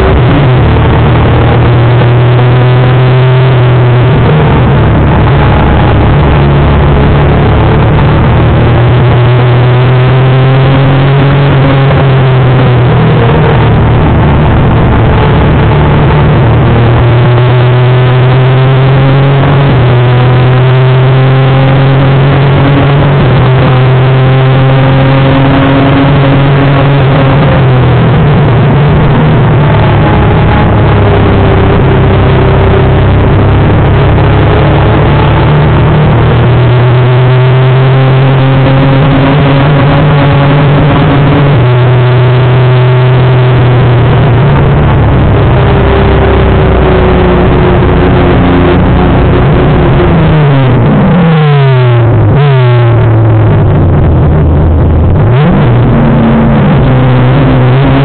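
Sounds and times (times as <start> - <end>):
motorcycle engine revving: 0.0 - 58.0
wind rushing on microphone: 51.9 - 58.0.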